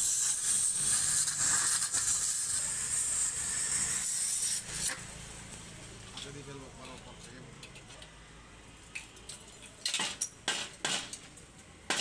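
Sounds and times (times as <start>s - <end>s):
gas cutting torch hissing: 0.0s - 5.1s.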